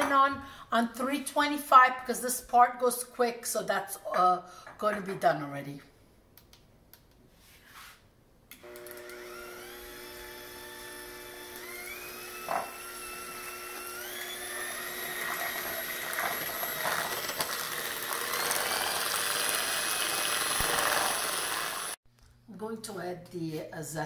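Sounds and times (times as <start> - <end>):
electric hand mixer whining: 8.6 - 22.0.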